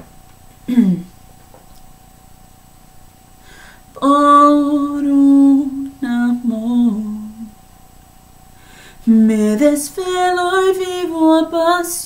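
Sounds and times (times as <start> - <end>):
woman singing unaccompanied: 3.9 - 7.6, 9.0 - 12.0.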